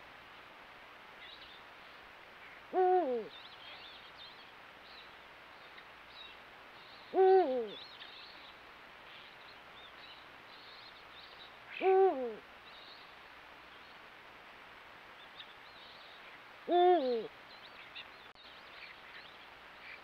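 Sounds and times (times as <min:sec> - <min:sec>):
owl hooting: 0:02.7 - 0:03.3, 0:07.1 - 0:07.8, 0:11.7 - 0:12.4, 0:16.7 - 0:17.3.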